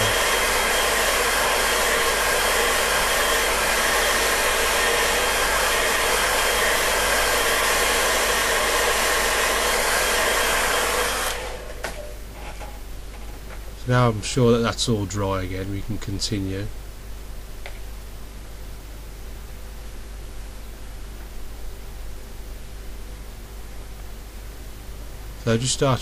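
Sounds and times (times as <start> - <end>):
hair dryer blowing: 0.0 - 12.0.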